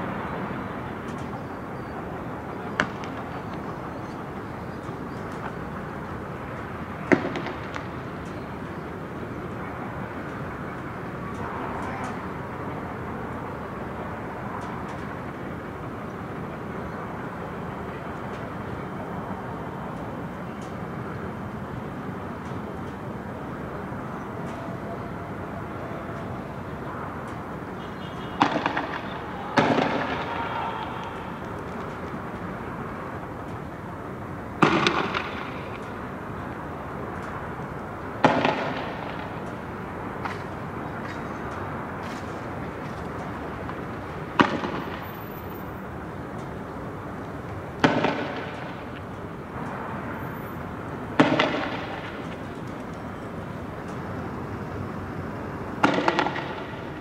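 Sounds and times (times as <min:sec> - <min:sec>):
street background noise: 0:00.0 - 0:57.0
sharp bangs echoing: 0:28.3 - 0:32.4, 0:34.6 - 0:35.9, 0:38.2 - 0:39.7, 0:44.3 - 0:45.1, 0:47.8 - 0:49.1, 0:51.1 - 0:52.5, 0:55.8 - 0:57.0
sharp explosive bangs: 0:28.4 - 0:31.0.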